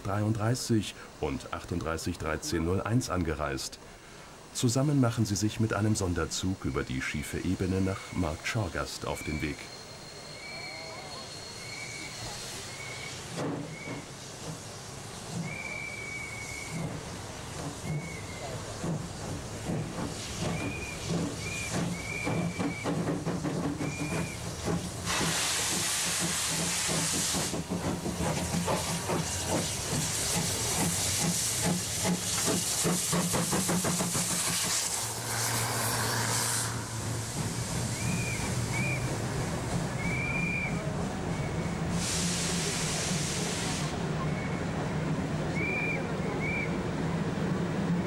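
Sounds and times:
steam hiss: 6.8s - 44.7s
steam locomotive chuffs: 6.8s - 48.0s.

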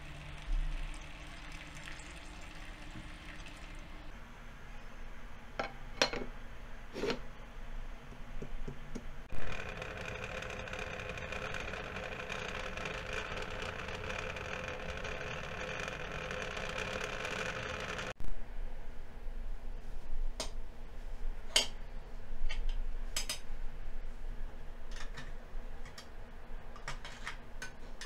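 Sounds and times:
pot of water humming on stove: 0.0s - 4.2s, 8.4s - 18.2s.

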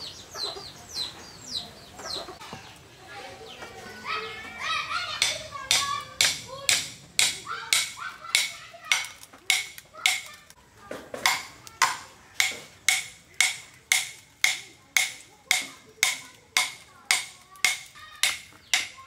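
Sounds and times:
rhythmic ringing tool strikes: 5.2s - 10.3s.

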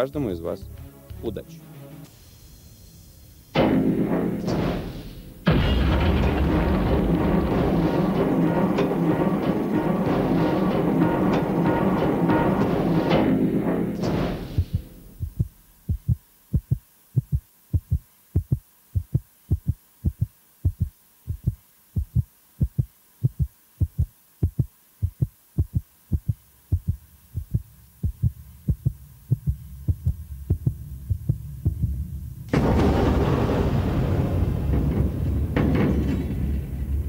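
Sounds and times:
heartbeat thumps: 14.2s - 32.1s.

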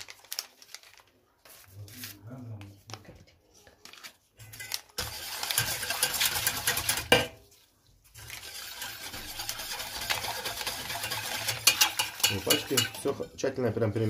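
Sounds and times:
whisk scraping metal pot: 4.4s - 14.0s.

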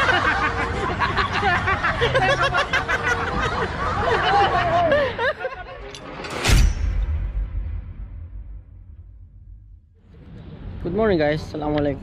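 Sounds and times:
people laughing and chattering: 0.0s - 6.3s
sudden loud burst: 6.3s - 9.8s.

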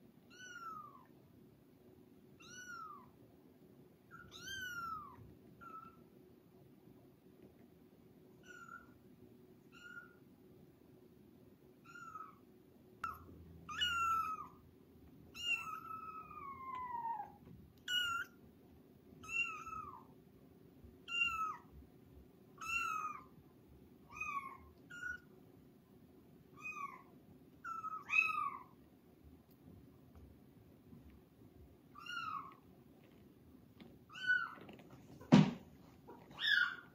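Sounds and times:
kitten meowing: 0.3s - 1.1s, 2.4s - 3.1s, 4.1s - 6.0s, 8.4s - 9.0s, 9.7s - 10.2s, 11.8s - 12.4s, 13.0s - 14.6s, 15.3s - 18.4s, 19.2s - 20.1s, 21.1s - 21.7s, 22.6s - 23.3s, 24.1s - 25.3s, 26.6s - 28.8s, 32.0s - 32.6s, 36.2s - 36.9s.

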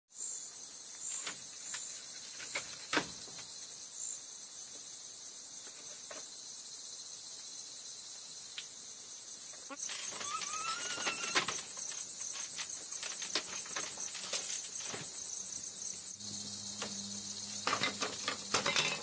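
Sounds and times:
night insects chorus: 0.2s - 19.0s.

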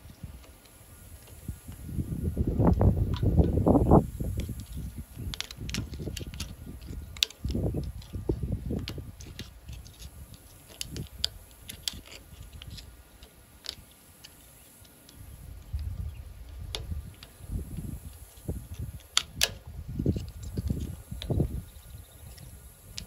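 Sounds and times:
low handling noise: 0.0s - 23.0s
metal tool clicks and scrapes: 4.3s - 15.2s, 16.7s - 21.4s.

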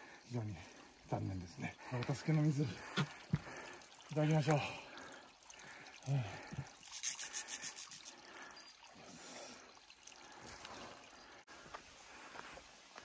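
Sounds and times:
faint water trickle: 0.0s - 11.6s
rubbing scraping sounds: 6.9s - 8.1s.

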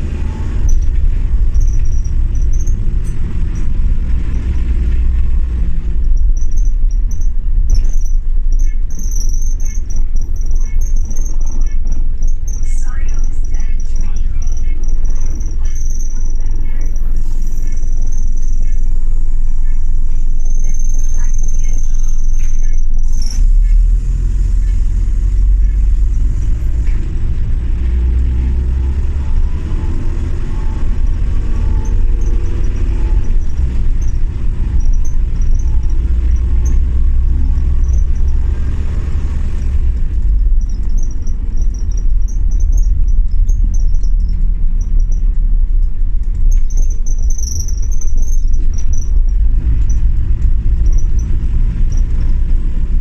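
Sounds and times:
bus engine rumble: 0.0s - 53.0s.

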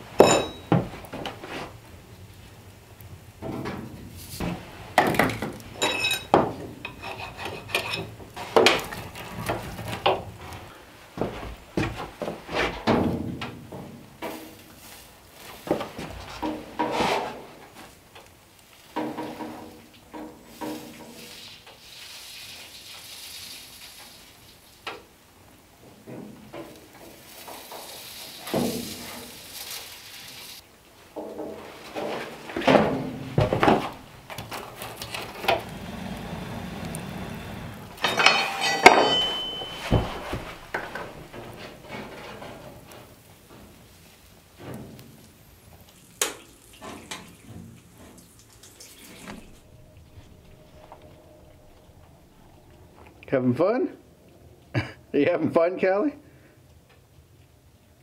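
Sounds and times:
metal tools clinking on copper: 0.2s - 0.8s, 5.8s - 8.1s, 38.0s - 40.5s
soldering iron hiss: 35.5s - 37.9s.

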